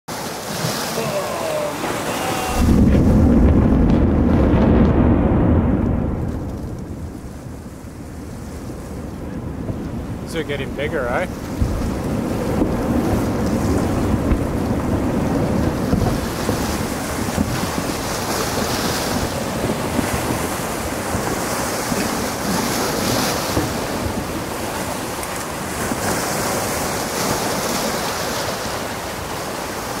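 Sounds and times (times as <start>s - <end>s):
volcano rushing roar: 0.5s - 30.0s
low rumble: 1.9s - 16.1s.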